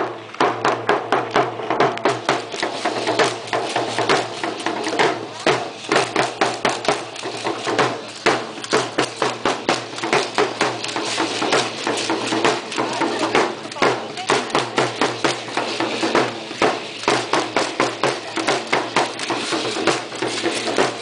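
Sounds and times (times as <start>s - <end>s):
rhythmic percussion beats: 0.0s - 21.0s
crowd voices: 1.2s - 21.0s.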